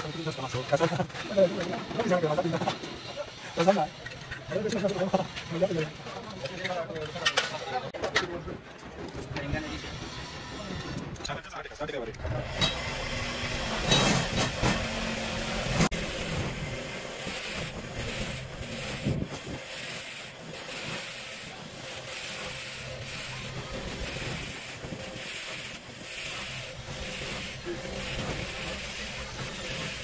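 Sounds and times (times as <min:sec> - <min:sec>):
grinder motor humming: 0:12.2 - 0:30.0
wire wheel scrubbing metal: 0:12.4 - 0:30.0.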